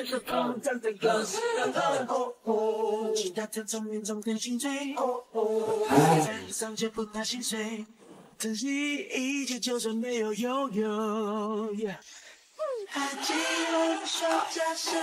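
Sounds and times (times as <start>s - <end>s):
man singing a song: 3.0s - 12.1s, 12.8s - 15.0s.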